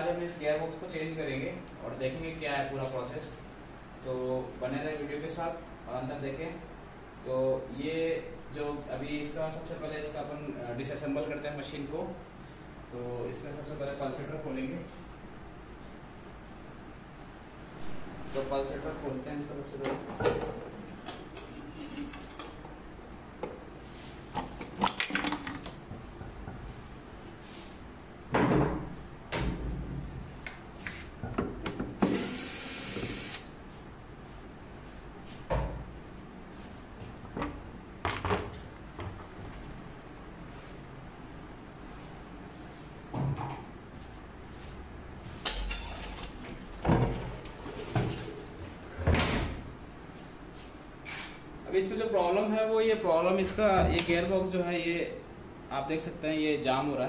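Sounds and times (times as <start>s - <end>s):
knocks and plastic clatter: 24.4s - 25.8s.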